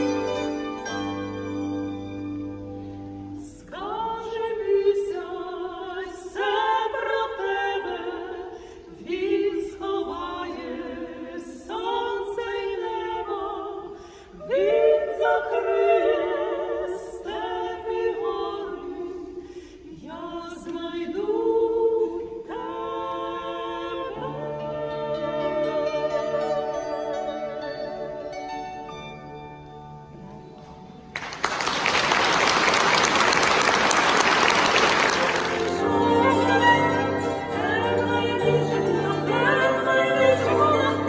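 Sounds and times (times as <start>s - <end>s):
women singing in harmony: 3.4s - 28.6s, 35.3s - 41.0s.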